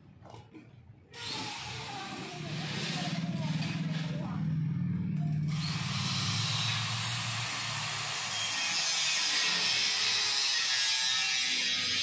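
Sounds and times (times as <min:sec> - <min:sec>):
power tool hissing on steel: 0:01.2 - 0:03.7, 0:05.5 - 0:12.0.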